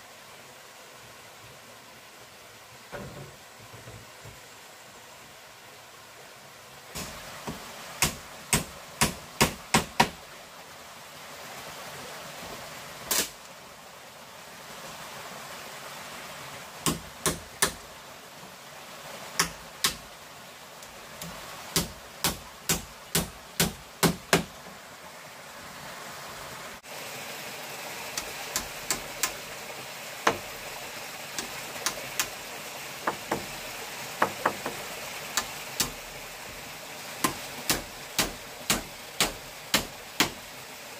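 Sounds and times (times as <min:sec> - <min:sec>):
running water: 0:00.0 - 0:40.9
tool knocking on bamboo: 0:07.0 - 0:10.2, 0:21.8 - 0:24.5, 0:30.2 - 0:30.5, 0:33.0 - 0:33.6, 0:34.2 - 0:36.0, 0:37.2 - 0:40.4.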